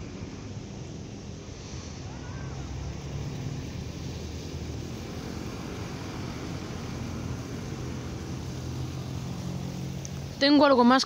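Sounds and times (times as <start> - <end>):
even hiss: 0.0 - 11.0
vehicle engine idling: 0.0 - 11.0.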